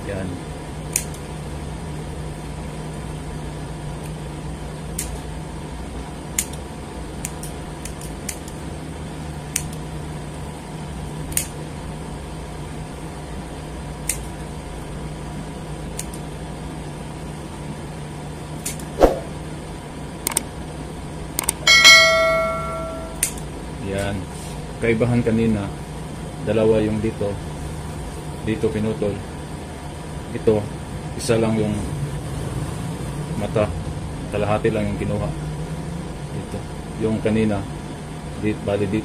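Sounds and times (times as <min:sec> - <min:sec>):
steady low hum: 0:00.0 - 0:23.9
scissors snipping twine: 0:00.9 - 0:01.2, 0:07.2 - 0:08.6, 0:09.5 - 0:09.8, 0:11.3 - 0:11.6, 0:14.0 - 0:14.4, 0:15.9 - 0:16.2
short chime: 0:21.7 - 0:23.2.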